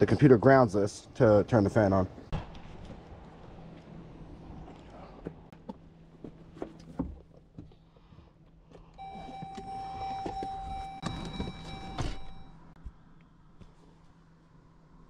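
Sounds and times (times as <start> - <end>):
electronic buzzer tone: 9.0 - 12.6.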